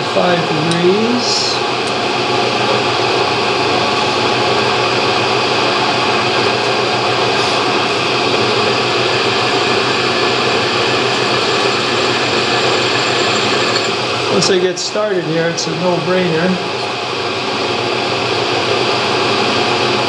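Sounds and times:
drilling machine motor humming: 3.1 - 14.6.

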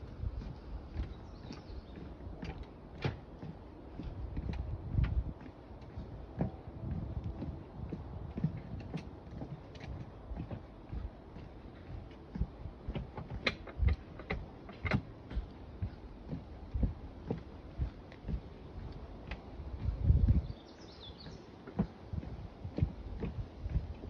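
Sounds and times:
footsteps walking: 0.0 - 24.0
low rumble: 15.4 - 20.6.

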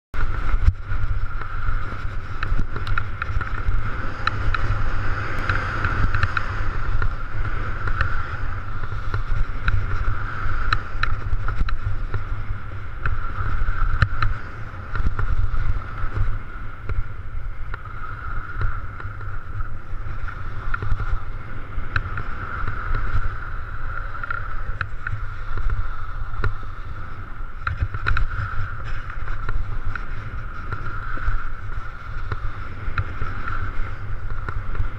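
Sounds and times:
wind buffeting microphone: 0.1 - 34.9
skis sliding on snow: 0.2 - 34.9
small clicks and knocks: 2.4 - 7.1, 27.6 - 31.0.

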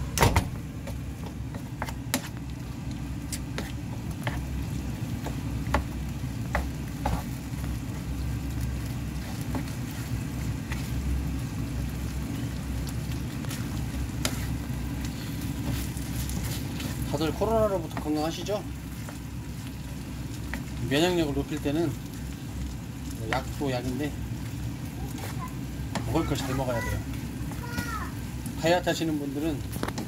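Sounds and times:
stir-fry sizzling in a frying pan: 0.0 - 30.0
spatula scraping a pan: 13.5 - 18.2.

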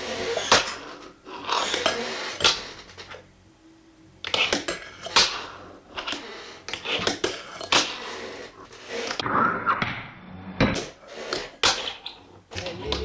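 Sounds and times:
fingerboard scraping along rail: 7.7 - 9.2.

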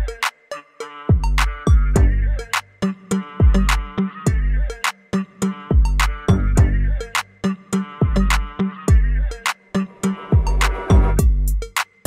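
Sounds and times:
electronic music with drum machine: 0.0 - 12.0
deep bass kicks sliding down: 10.3 - 11.5.

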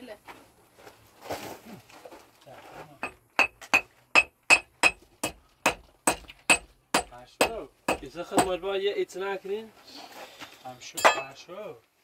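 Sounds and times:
hammer striking metal: 3.0 - 8.6.

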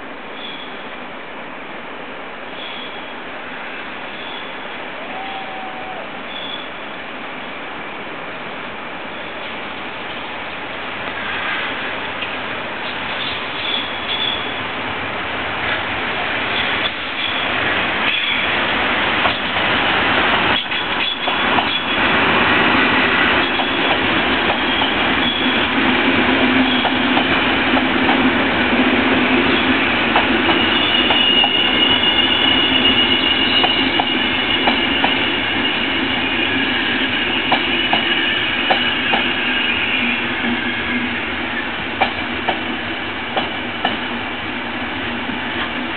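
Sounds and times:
train wheels rumbling on rails: 2.5 - 45.9
high wheel squeal: 4.1 - 6.8, 13.1 - 14.7, 16.5 - 18.6, 24.6 - 25.7, 29.4 - 41.2.

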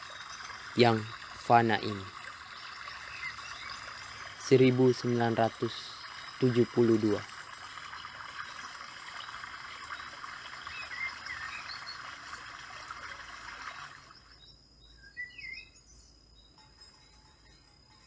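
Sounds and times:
stream rushing: 0.0 - 14.0
birds chirping: 0.0 - 16.1.

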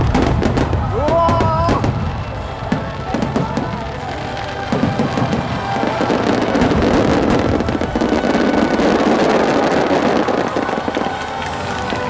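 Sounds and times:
fireworks bursting and crackling: 0.0 - 12.0.

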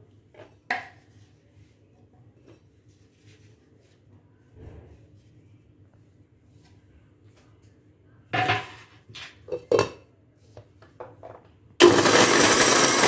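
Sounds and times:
mixer grinder motor running: 11.8 - 13.0.

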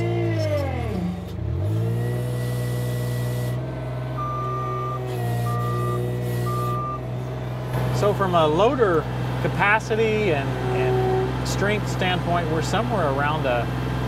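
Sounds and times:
diesel loader engine working: 0.0 - 14.0
backup alarm beeping: 4.2 - 7.0.

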